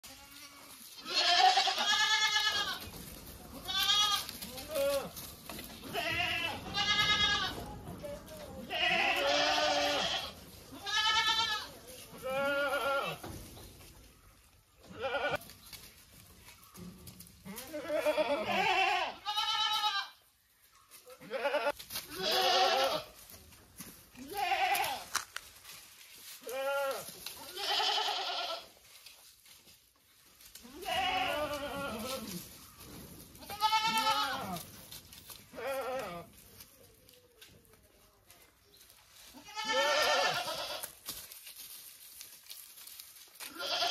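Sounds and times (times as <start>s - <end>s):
goats bleating: 0.0s - 7.7s, 8.6s - 13.3s, 14.9s - 15.4s, 17.5s - 20.2s, 21.1s - 23.2s, 24.2s - 25.2s, 26.4s - 28.8s, 30.6s - 32.5s, 33.4s - 34.9s, 35.5s - 36.3s, 39.2s - 41.0s, 43.4s - 43.9s.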